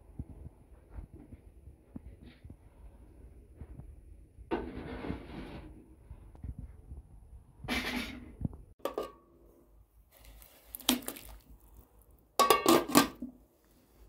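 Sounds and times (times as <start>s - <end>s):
metal pot clinking: 8.8s - 9.2s, 12.4s - 13.3s
salt pouring into boiling water: 10.1s - 12.1s.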